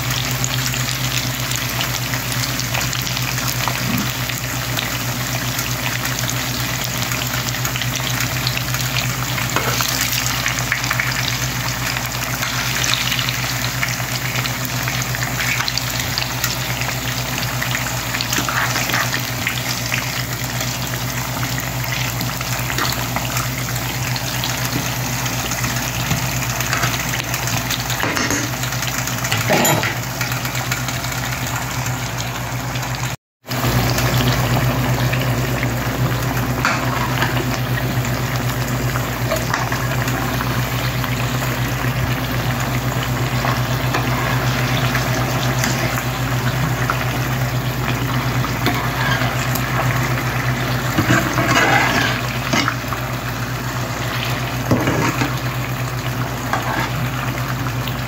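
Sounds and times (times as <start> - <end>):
food sizzling and bubbling in oil: 0.0 - 58.0.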